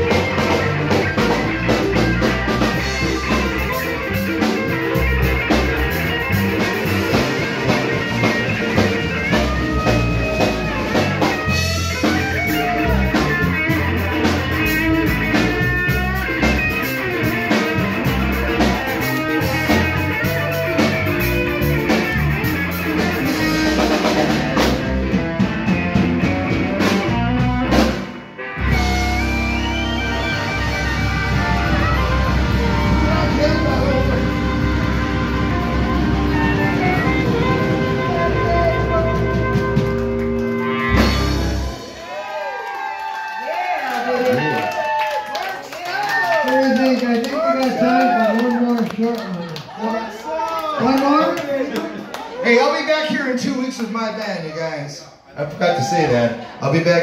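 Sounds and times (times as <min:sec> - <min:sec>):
drum kit beat: 0:00.0 - 0:42.3
electric guitar: 0:00.0 - 0:49.8.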